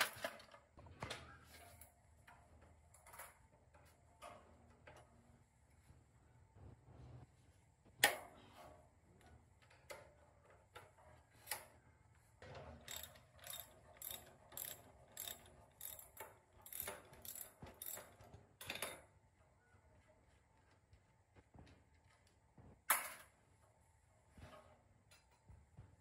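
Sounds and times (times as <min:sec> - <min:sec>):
hand tools clicking on metal: 0:12.8 - 0:19.0.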